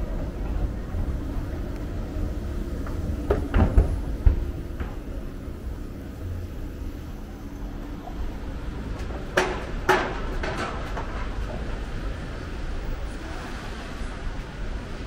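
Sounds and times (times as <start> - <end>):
train low rumble: 0.0 - 15.0
clunks and rattles: 2.8 - 5.2, 8.9 - 11.7.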